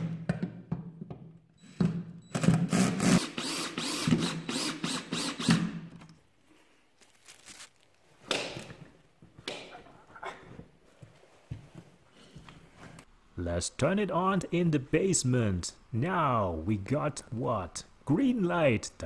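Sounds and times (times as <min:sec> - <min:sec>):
cordless drill driving screw: 0:02.7 - 0:05.7.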